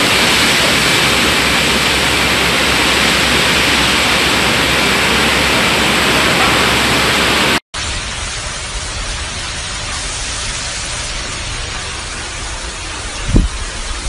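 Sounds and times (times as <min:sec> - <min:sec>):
strong wind and heavy rain: 0:00.0 - 0:14.0
wind gust buffeting microphone: 0:13.0 - 0:14.0.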